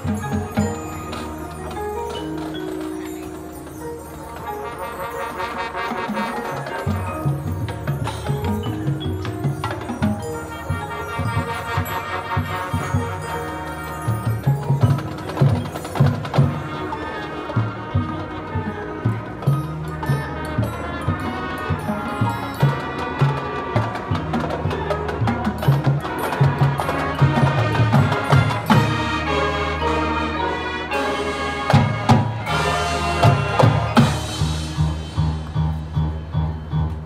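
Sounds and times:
marching band playing: 0.0s - 37.0s
drum strikes: 6.0s - 13.2s, 31.6s - 36.2s.

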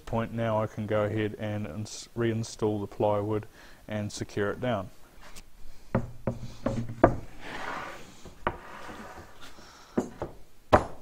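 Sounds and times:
plywood knocking on frame: 6.0s - 7.3s, 10.0s - 11.0s
plywood scraping: 6.2s - 10.3s.

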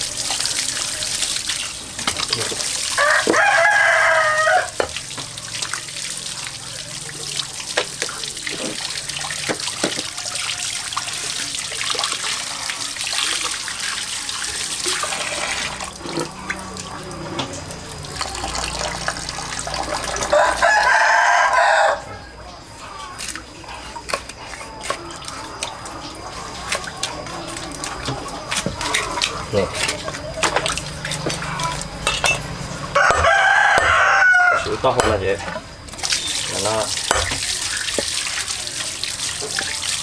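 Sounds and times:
running water hiss: 0.0s - 20.8s, 34.6s - 40.0s
rooster crowing: 2.9s - 4.9s, 10.0s - 11.2s, 20.0s - 22.4s, 32.8s - 34.9s.

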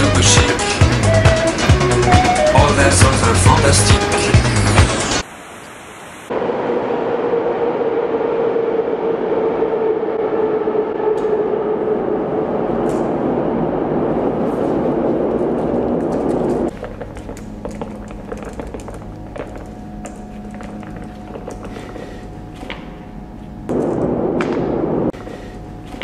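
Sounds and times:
train rumbling through tunnel: 6.3s - 23.0s
low hum: 6.3s - 26.0s.

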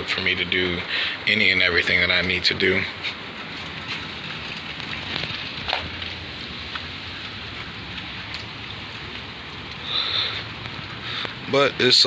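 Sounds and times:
steady rain falling: 0.0s - 12.0s.

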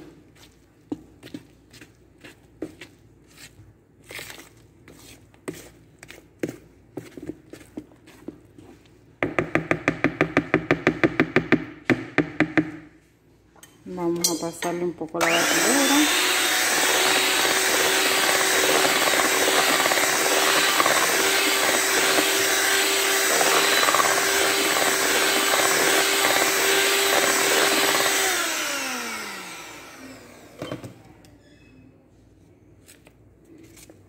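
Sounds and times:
electric hand mixer whirring: 15.2s - 31.0s.

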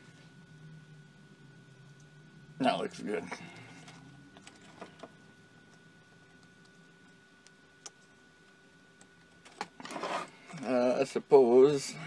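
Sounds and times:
low room hiss: 0.0s - 12.0s.

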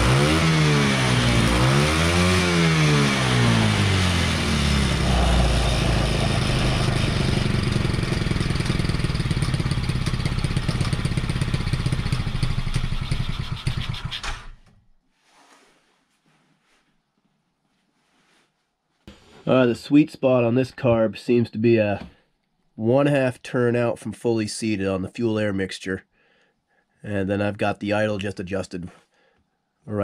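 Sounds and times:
atv engine running and revving: 0.0s - 14.2s.

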